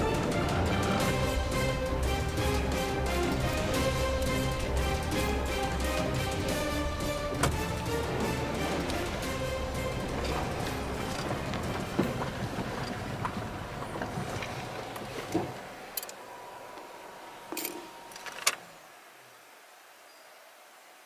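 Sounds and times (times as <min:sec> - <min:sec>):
car driving on gravel: 0:00.0 - 0:16.0.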